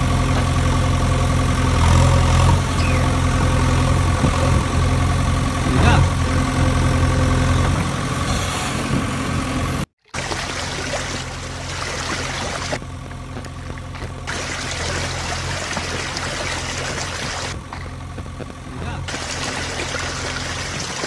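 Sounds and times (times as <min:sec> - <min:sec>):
engine idling hum: 0:00.0 - 0:21.0
water trickling and pouring: 0:10.1 - 0:12.8, 0:14.3 - 0:17.5, 0:19.1 - 0:21.0.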